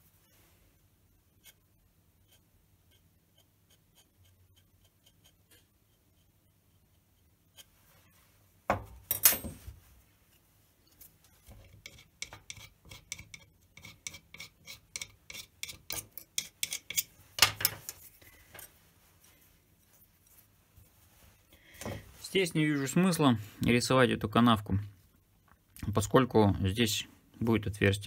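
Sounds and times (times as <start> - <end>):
metal tool clicking and scraping: 11.6 - 18.8.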